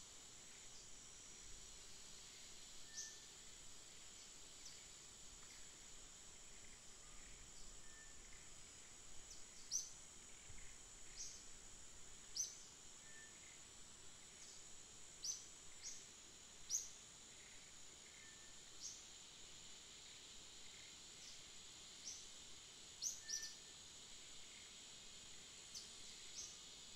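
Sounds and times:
high-pitched insect drone: 0:00.0 - 0:26.9.

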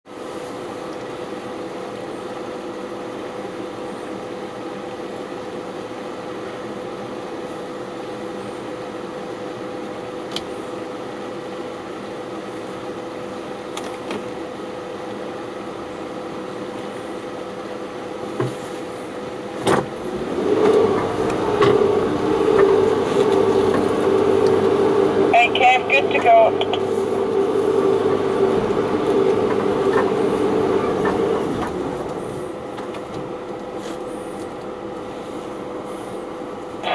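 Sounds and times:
car engine idling: 0:20.0 - 0:36.9.

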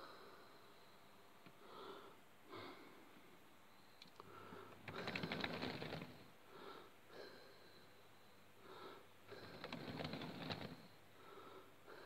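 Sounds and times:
soft breathy puffs: 0:00.0 - 0:12.0
model railway wagons rolling: 0:05.0 - 0:06.1.

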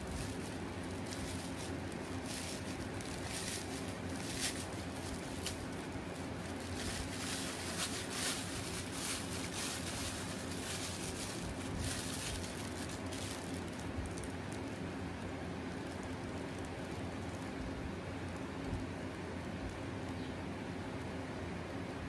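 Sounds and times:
plastic bag crinkling: 0:00.0 - 0:17.6
low background hum: 0:00.0 - 0:22.0.

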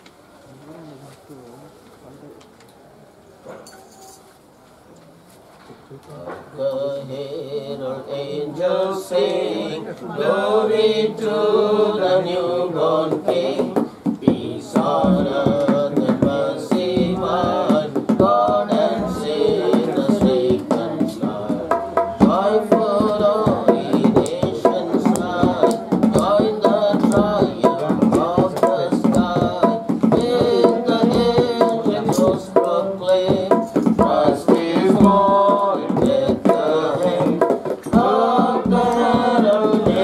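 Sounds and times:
gospel singing: 0:06.2 - 0:40.0
drum beats: 0:13.1 - 0:40.0.

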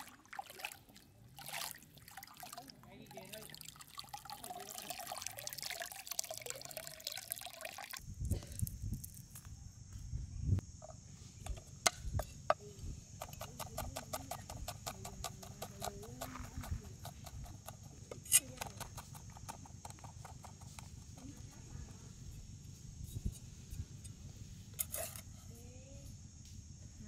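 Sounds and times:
water sloshing and trickling: 0:00.0 - 0:08.0.

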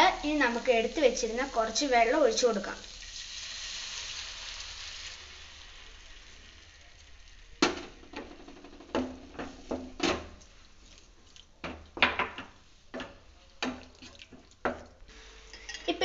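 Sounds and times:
water sizzling in hot oil: 0:00.0 - 0:10.6.

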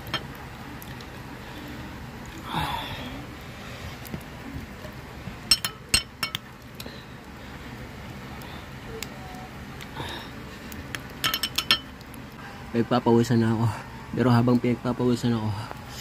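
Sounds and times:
metal spoon clinking on ceramic: 0:11.2 - 0:11.9.

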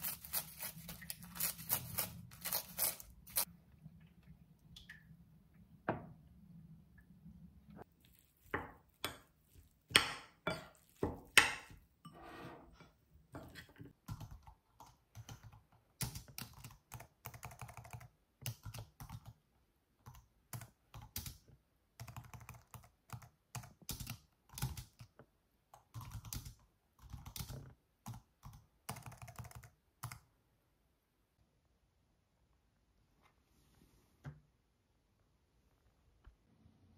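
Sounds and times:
typing on a computer keyboard: 0:14.1 - 0:19.4, 0:20.0 - 0:25.1, 0:25.8 - 0:30.3.

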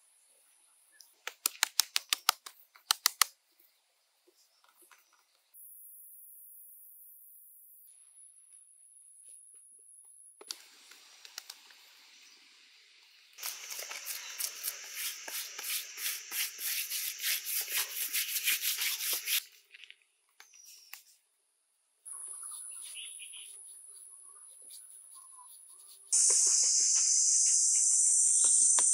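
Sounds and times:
high insect drone: 0:13.4 - 0:17.0, 0:26.2 - 0:28.9
hand scraping wet mud plaster: 0:13.4 - 0:19.4.

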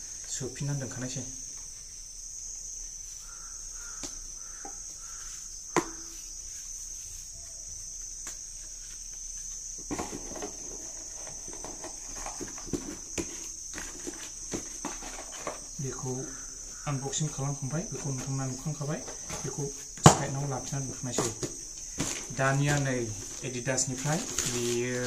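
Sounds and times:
insects chirring: 0:00.0 - 0:25.0
belt and cardboard box handled: 0:09.8 - 0:15.8.

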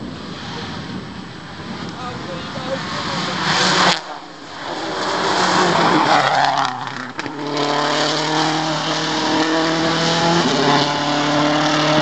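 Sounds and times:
rally car passing at speed: 0:02.4 - 0:12.0.

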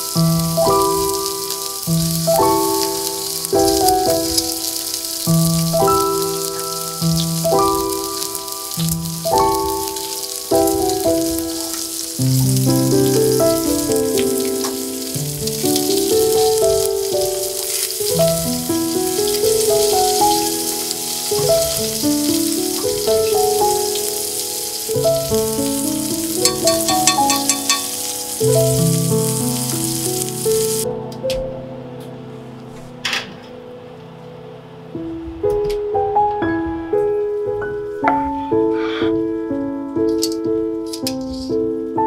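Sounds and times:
steak sizzling in a skillet: 0:00.0 - 0:30.8
gentle background music: 0:00.0 - 0:42.0.

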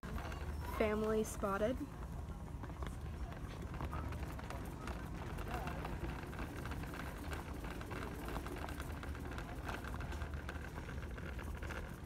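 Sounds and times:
shopping cart rolling: 0:00.0 - 0:12.0.

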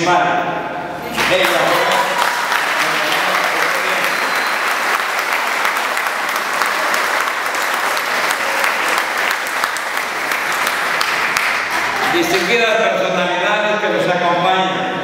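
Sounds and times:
audience applauding: 0:01.1 - 0:12.8.

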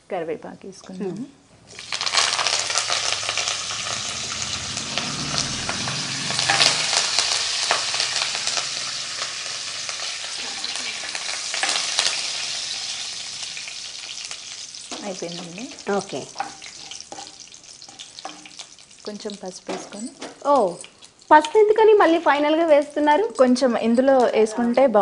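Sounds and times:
seeds sizzling in hot oil: 0:01.6 - 0:24.2
leaves crackling in oil: 0:01.7 - 0:25.0
spoon stirring: 0:15.7 - 0:24.6.

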